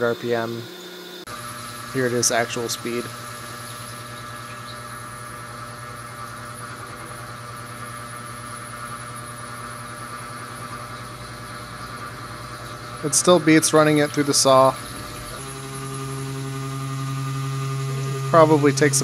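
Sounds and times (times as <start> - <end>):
milling machine hum: 0.0 - 19.0
coolant hiss: 1.3 - 19.0.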